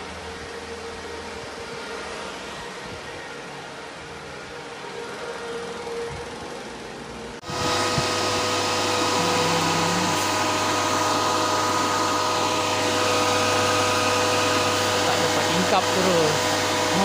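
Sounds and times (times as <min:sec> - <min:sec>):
cooling fans whirring with whine: 0:00.0 - 0:17.0
quiet machine hum: 0:07.5 - 0:17.0.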